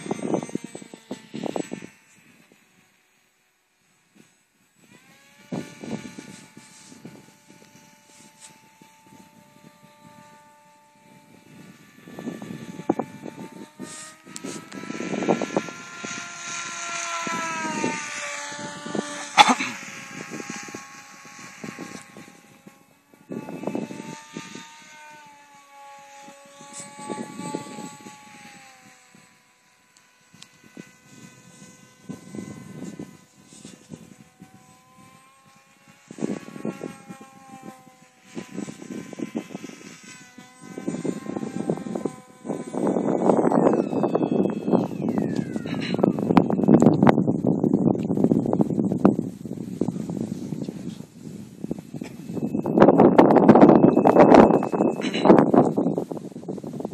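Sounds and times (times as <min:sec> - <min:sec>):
wind rumbling on microphone: 0:00.0 - 0:03.2, 0:04.0 - 0:56.9
model plane motor whining: 0:00.0 - 0:56.9.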